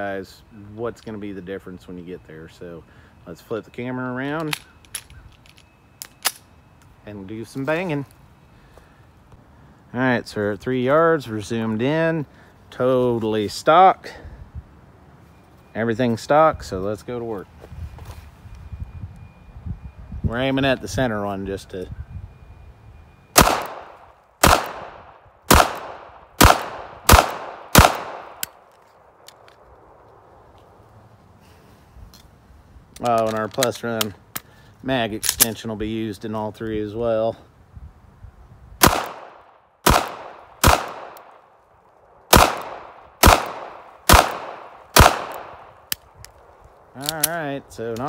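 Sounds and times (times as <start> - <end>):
pistol shots: 23.4 - 28.6, 38.8 - 41.4, 42.3 - 45.8.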